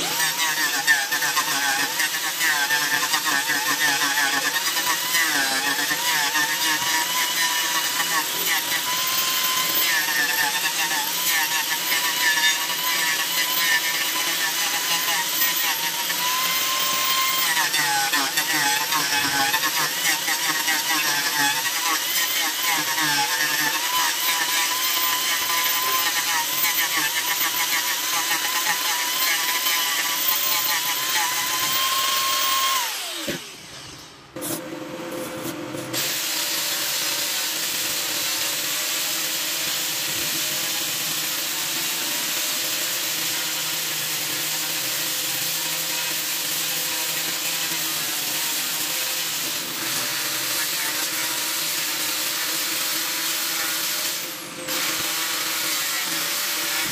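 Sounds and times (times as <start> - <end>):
angle grinder sanding wood: 0.0 - 33.9, 35.9 - 56.9.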